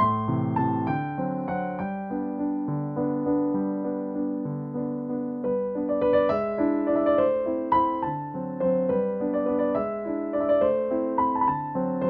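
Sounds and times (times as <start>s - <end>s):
gentle piano piece: 0.0s - 12.0s.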